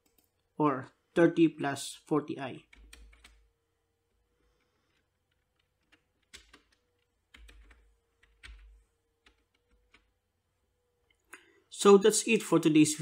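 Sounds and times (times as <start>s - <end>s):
keystrokes on computer keyboard: 0.0s - 0.4s, 2.7s - 3.5s, 4.6s - 10.2s
faint steady hum: 0.0s - 13.0s.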